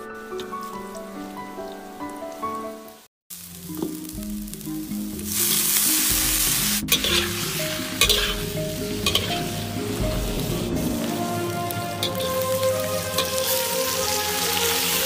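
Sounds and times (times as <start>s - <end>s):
background music: 0.0s - 15.0s
meat sizzling in hot oil: 3.3s - 11.2s, 12.0s - 15.0s
metal ladle scraping wok: 5.3s - 15.0s.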